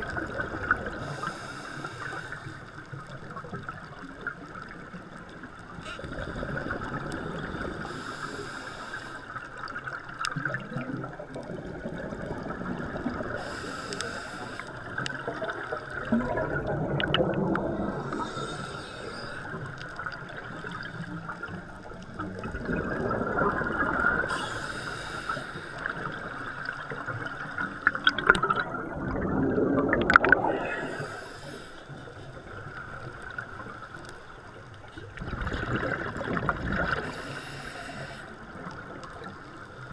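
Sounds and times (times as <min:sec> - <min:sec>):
faint steady hum: 0:00.0 - 0:39.9
regulator inhale hiss: 0:00.9 - 0:02.9, 0:07.3 - 0:09.6, 0:13.3 - 0:15.0, 0:17.8 - 0:19.9, 0:24.2 - 0:26.8, 0:30.4 - 0:32.4, 0:36.9 - 0:38.8
bubbling exhale rumble: 0:05.8 - 0:08.6, 0:10.3 - 0:34.0, 0:35.0 - 0:39.9.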